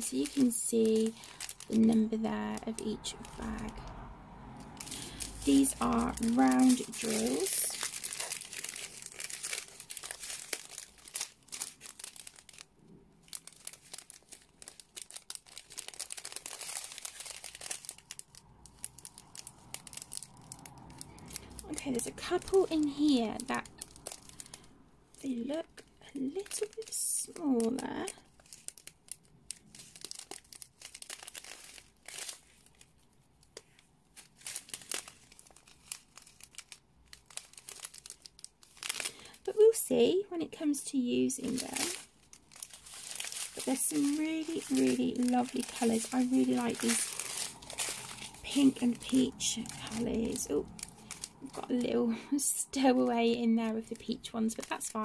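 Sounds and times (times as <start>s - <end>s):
plastic bags crinkling: 0.0s - 55.0s.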